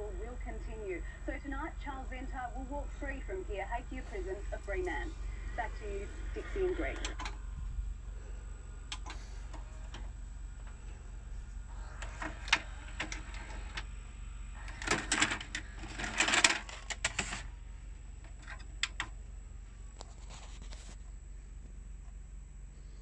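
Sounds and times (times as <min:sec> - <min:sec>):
steady low hum: 0:00.0 - 0:23.0
tape mechanism clattering and whirring: 0:08.9 - 0:13.9, 0:14.6 - 0:17.6.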